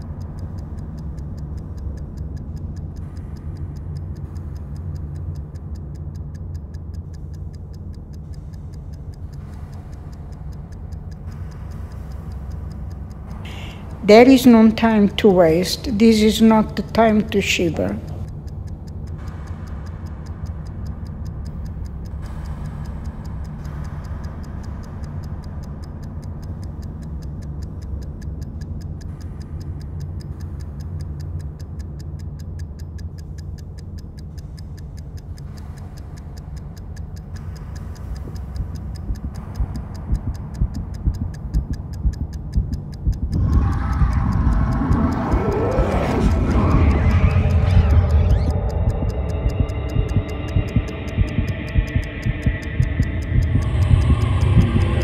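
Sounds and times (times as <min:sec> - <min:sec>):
low hum: 0:00.0 - 0:55.0
oven timer ticking: 0:00.0 - 0:55.0.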